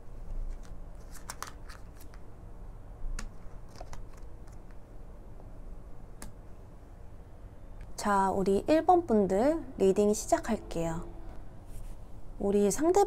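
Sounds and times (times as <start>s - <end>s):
cards clicking and sliding on cloth: 0.4s - 2.2s, 3.2s - 4.8s.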